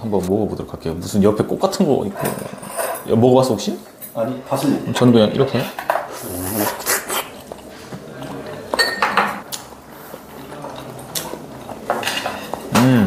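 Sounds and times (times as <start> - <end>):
utensils clinking on dishes: 2.0 - 4.3, 7.4 - 13.0.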